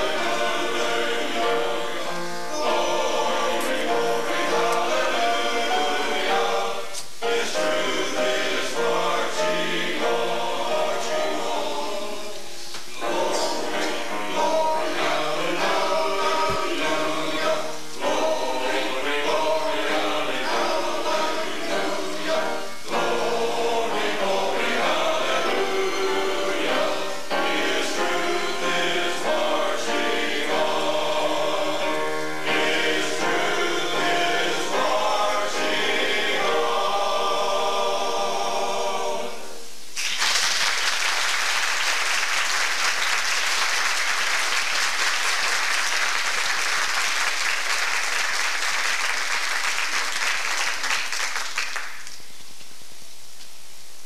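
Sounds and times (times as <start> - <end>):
men's choir singing: 0.0 - 39.7
audience applause: 40.0 - 52.2.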